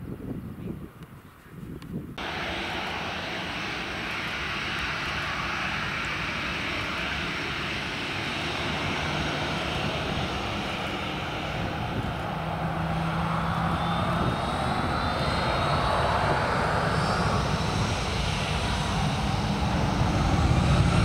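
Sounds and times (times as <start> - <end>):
jet engines running: 2.2 - 21.0.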